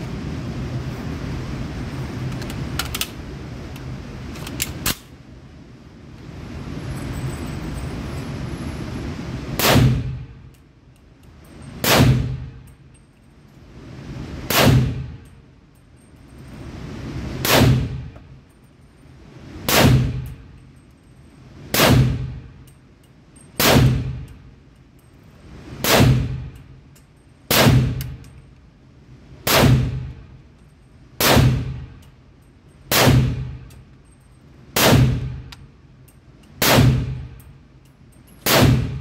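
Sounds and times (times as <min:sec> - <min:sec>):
pistol gunshots indoors: 0:09.6 - 0:10.3, 0:11.8 - 0:12.6, 0:14.5 - 0:15.3, 0:17.4 - 0:18.2, 0:19.7 - 0:20.4, 0:21.7 - 0:22.5, 0:23.6 - 0:24.4, 0:25.8 - 0:26.6, 0:27.5 - 0:28.2, 0:29.4 - 0:30.2, 0:31.2 - 0:32.0, 0:32.9 - 0:33.8, 0:34.8 - 0:35.5, 0:36.6 - 0:37.5, 0:38.4 - 0:39.0.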